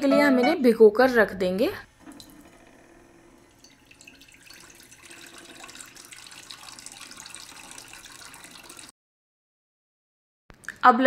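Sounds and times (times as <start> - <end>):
tap water pouring into a bowl: 1.9 - 2.8, 3.4 - 8.9.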